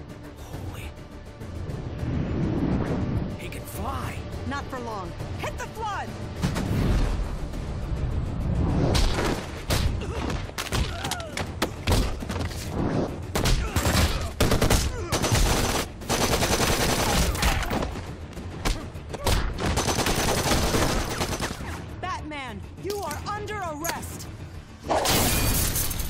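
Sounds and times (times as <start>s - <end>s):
rapid rifle gunfire: 13.8s - 17.4s, 19.6s - 21.6s.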